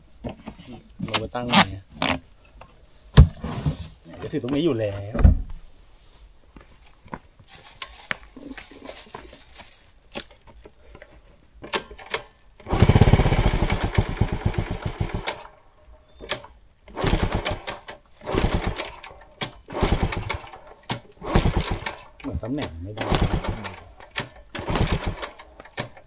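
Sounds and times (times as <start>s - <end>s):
small engine revving hard: 12.7s - 15.3s, 23.0s - 23.8s.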